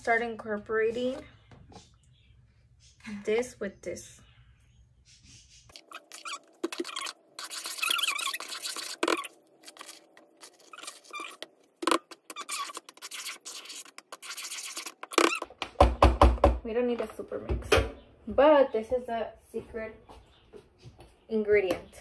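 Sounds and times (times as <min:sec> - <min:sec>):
metal spoon stirring batter in bowl: 0:05.7 - 0:15.4.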